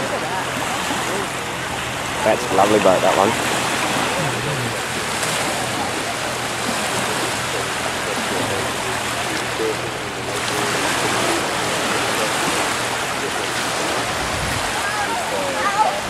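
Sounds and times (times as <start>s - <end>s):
boat wake washing onto beach: 0.0s - 16.0s.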